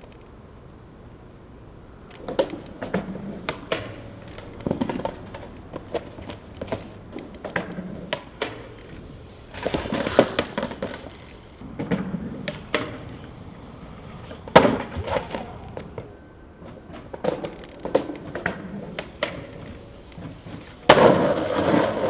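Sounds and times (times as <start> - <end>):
skateboard wheels rolling: 1.9 - 22.0
skateboard knocks and clacks: 2.2 - 8.8, 9.5 - 13.3, 16.7 - 22.0.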